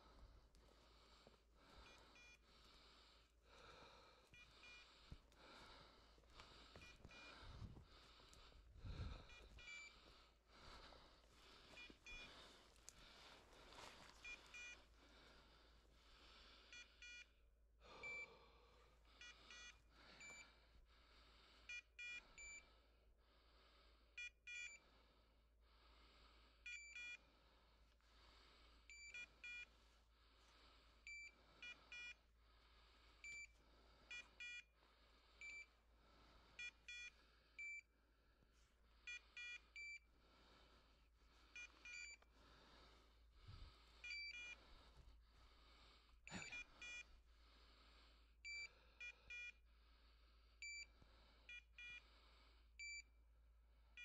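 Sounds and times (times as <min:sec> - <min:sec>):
electronic collar beeps: 0:09.0 - 0:10.0, 0:11.8 - 0:12.3, 0:14.2 - 0:14.8, 0:16.7 - 0:17.4, 0:18.0 - 0:18.2, 0:19.2 - 0:20.4, 0:21.7 - 0:22.6, 0:28.9 - 0:29.7, 0:31.1 - 0:32.2, 0:33.2 - 0:33.5, 0:34.1 - 0:34.7, 0:35.4 - 0:35.7, 0:36.6 - 0:37.9, 0:39.1 - 0:40.1, 0:41.6 - 0:42.2, 0:44.0 - 0:44.6, 0:46.3 - 0:47.1, 0:48.4 - 0:49.6, 0:50.6 - 0:50.9, 0:51.5 - 0:52.0, 0:52.8 - 0:53.1
footsteps through brush: 0:12.5 - 0:14.2.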